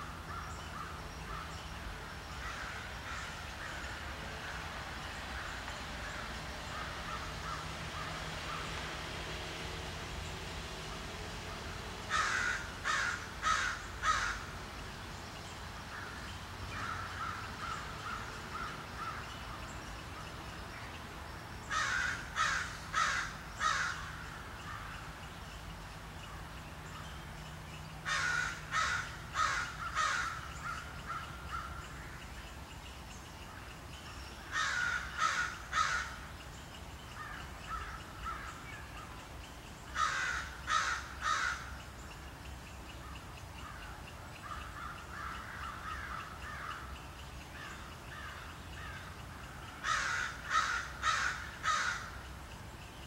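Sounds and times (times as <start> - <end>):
crow cawing: 2.4 - 4.6, 6.8 - 8.7, 12.1 - 14.5, 15.9 - 19.3, 21.7 - 25.0, 28.0 - 32.1, 34.5 - 36.3, 37.2 - 38.6, 39.9 - 41.7, 44.4 - 46.9, 49.8 - 52.2.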